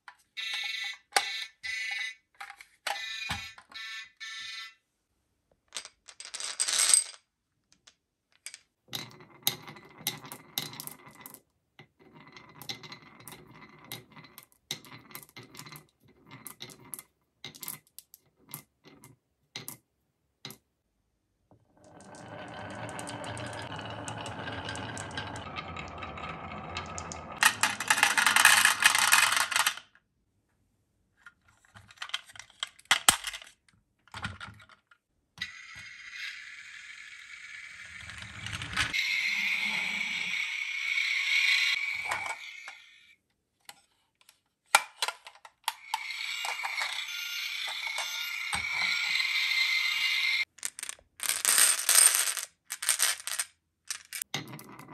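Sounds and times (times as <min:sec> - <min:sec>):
marbles clattering into plastic: 0:05.7 - 0:11.4, 0:21.8 - 0:30.0, 0:37.8 - 0:39.0, 0:50.4 - 0:54.9
marbles clicking into wooden grooves: 0:05.7 - 0:19.8, 0:21.8 - 0:29.9, 0:37.8 - 0:40.2, 0:44.9 - 0:54.9
marbles rolling down wooden track: 0:08.9 - 0:11.4, 0:21.7 - 0:29.8, 0:37.0 - 0:42.4, 0:45.7 - 0:54.9.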